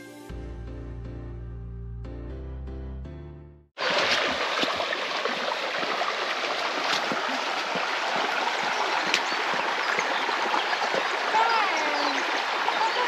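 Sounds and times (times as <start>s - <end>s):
background music: 0.0s - 3.7s
stream running over stones: 3.8s - 13.0s.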